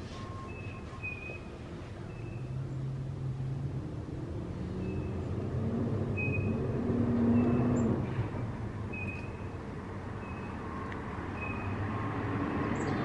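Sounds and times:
passing vehicle engine rumble: 0.0s - 13.0s
high bird chirps: 0.5s - 1.5s, 8.9s - 9.6s.

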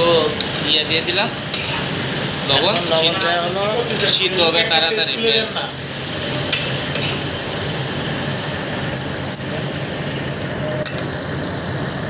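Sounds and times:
onions sizzling in hot oil: 6.0s - 12.0s.

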